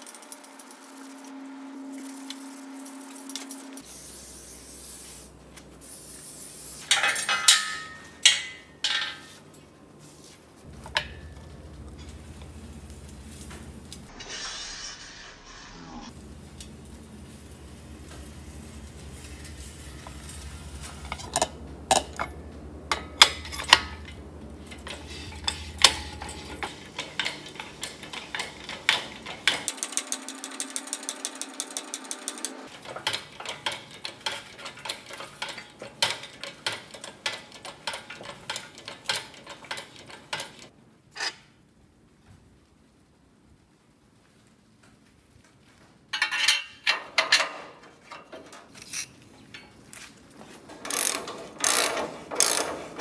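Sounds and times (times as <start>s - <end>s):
metal tools clanking: 6.8s - 9.7s, 10.6s - 14.1s, 16.1s - 41.5s, 46.1s - 53.0s
ratchet wrench clicking: 20.8s - 40.7s, 50.8s - 52.8s.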